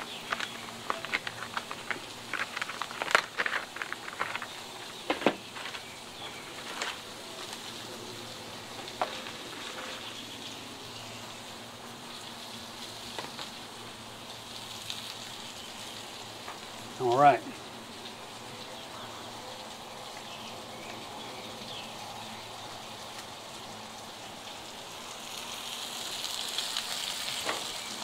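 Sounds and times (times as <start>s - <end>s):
crackling pops: 0.0s - 7.9s, 8.7s - 10.1s, 13.1s - 13.6s, 26.3s - 28.0s
meat sizzling on a griddle: 0.0s - 28.0s.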